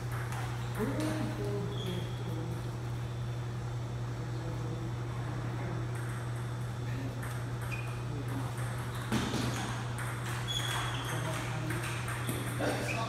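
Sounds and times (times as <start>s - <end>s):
table tennis balls being hit: 0.0s - 1.6s, 5.9s - 13.0s
low hum in a hall: 0.0s - 13.0s.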